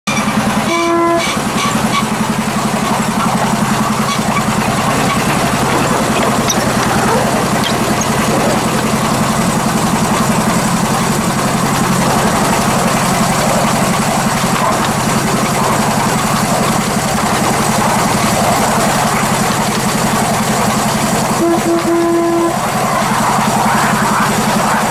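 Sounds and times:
miniature locomotive engine running: 0.1 - 24.9
short horn toot: 0.6 - 1.4, 21.4 - 22.6.

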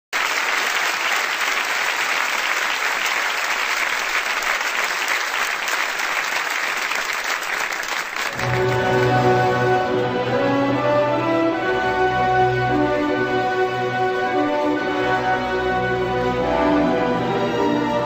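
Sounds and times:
large audience applauding: 0.1 - 10.0.

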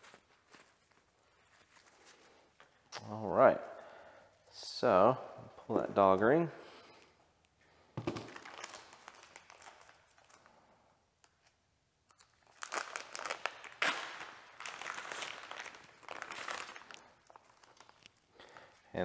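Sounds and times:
paper towels rustling and crumpling: 0.0 - 2.5, 12.6 - 18.1.

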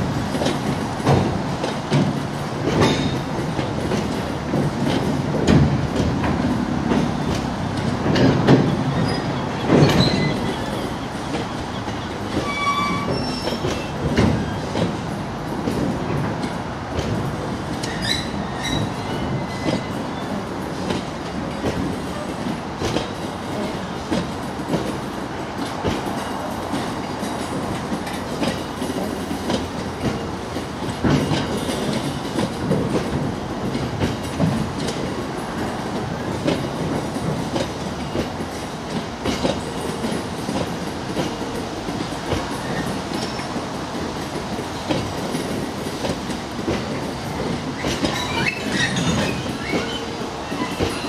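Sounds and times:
train wheels clicking over rail joints: 0.0 - 51.0
high wheel squeal: 8.7 - 14.7, 17.9 - 20.3, 47.8 - 51.0.

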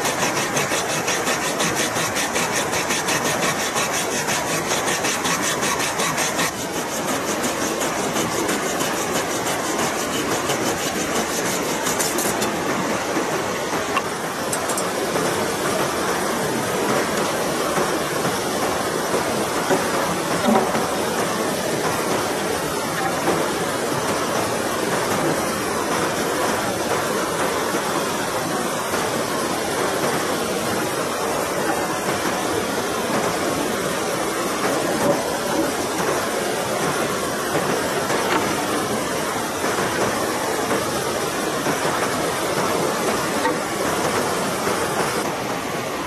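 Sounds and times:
water rushing over rocks: 0.0 - 46.0.

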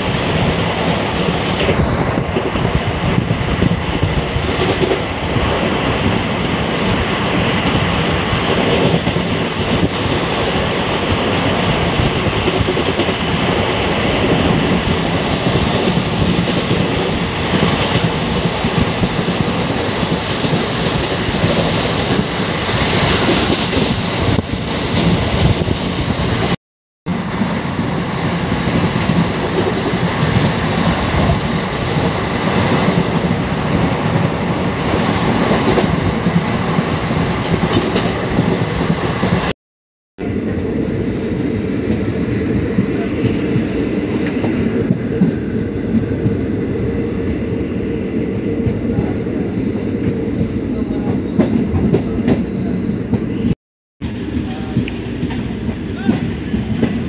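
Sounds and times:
train wheels rumbling on rails: 0.0 - 39.5, 40.2 - 57.0.

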